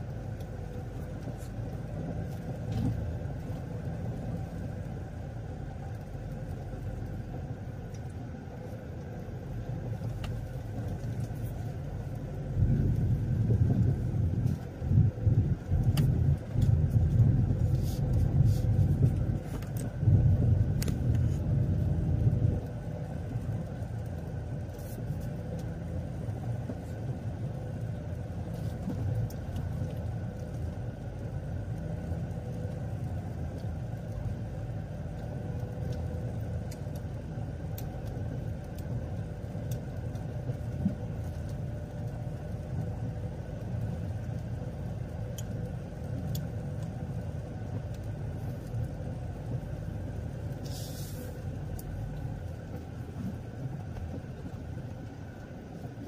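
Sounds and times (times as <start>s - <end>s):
faint steady hum: 0.0s - 56.0s
road vehicle rumble: 0.0s - 56.0s
brief hiss: 50.6s - 51.4s.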